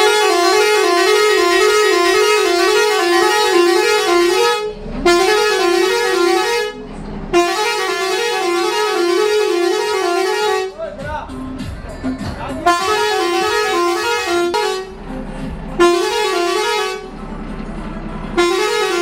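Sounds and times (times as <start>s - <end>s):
musical truck horn playing a tune: 0.0s - 11.0s, 12.6s - 17.2s, 18.3s - 19.0s.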